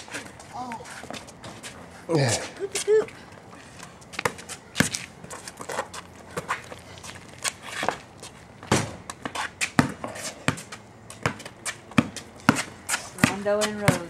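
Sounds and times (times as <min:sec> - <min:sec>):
basketball bouncing on concrete: 0:04.1 - 0:06.7, 0:07.4 - 0:14.0.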